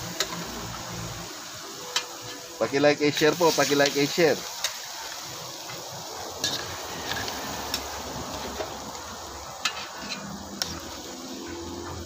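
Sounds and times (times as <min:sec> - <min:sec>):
meat sizzling in a wok: 0:00.0 - 0:12.0.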